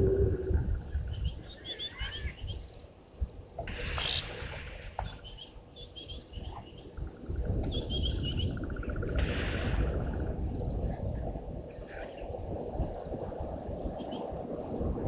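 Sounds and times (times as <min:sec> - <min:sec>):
low rumbling noise: 0:00.0 - 0:01.3, 0:07.1 - 0:15.0
high insect drone: 0:00.0 - 0:15.0
small birds chirping: 0:00.8 - 0:09.9.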